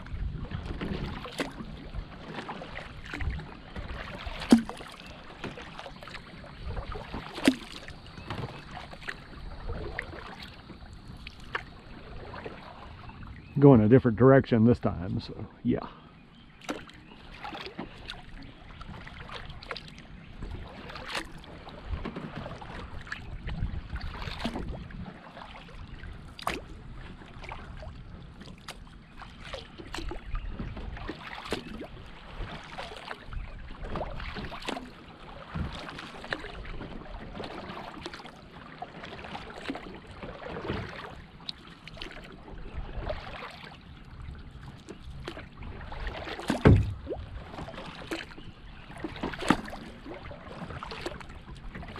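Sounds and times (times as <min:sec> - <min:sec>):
paddle splashing in water: 0:00.0 - 0:13.9, 0:15.8 - 0:51.9.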